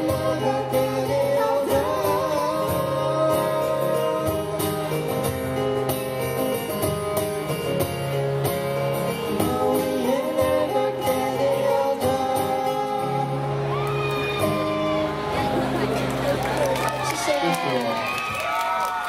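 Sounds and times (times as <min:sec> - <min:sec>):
person singing: 0:00.0 - 0:05.4, 0:09.1 - 0:13.7
acoustic guitars strumming: 0:00.0 - 0:17.3.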